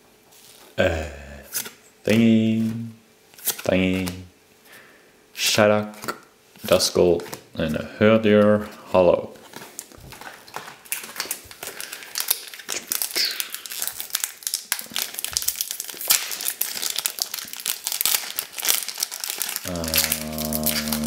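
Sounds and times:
foil wrapper crinkling: 9.3s - 21.0s.

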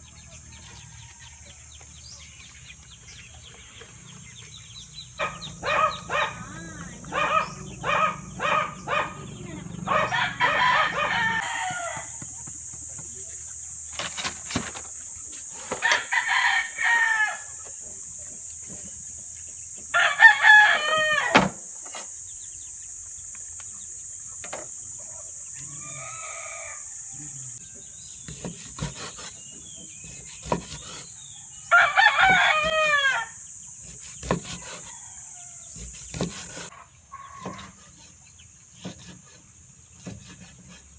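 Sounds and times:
rooster crowing: 9.9s - 12.3s, 15.7s - 17.6s, 19.9s - 21.5s, 25.5s - 27.8s, 31.3s - 33.4s, 34.5s - 35.8s.

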